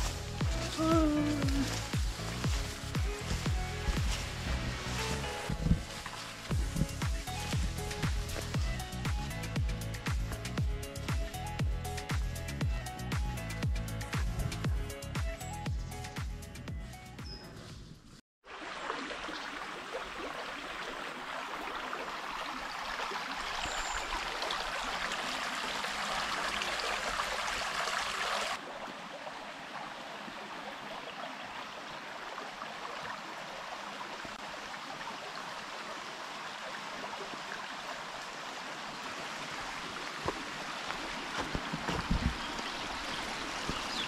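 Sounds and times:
river water rushing: 0.0s - 8.6s, 18.5s - 44.0s.

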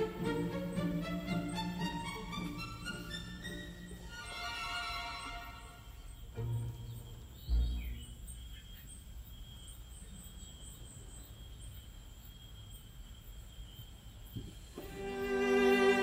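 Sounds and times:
insects high steady tone: 0.0s - 16.0s.

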